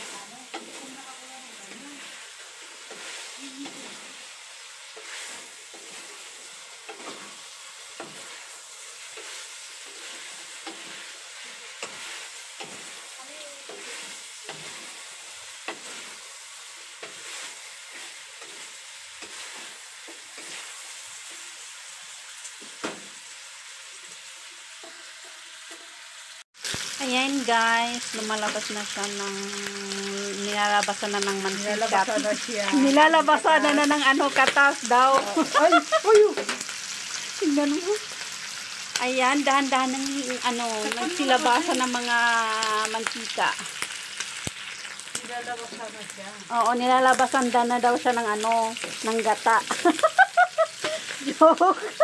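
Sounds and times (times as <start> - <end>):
spatula stirring and scraping: 0.0 - 21.7
meat sizzling in a wok: 0.0 - 52.0.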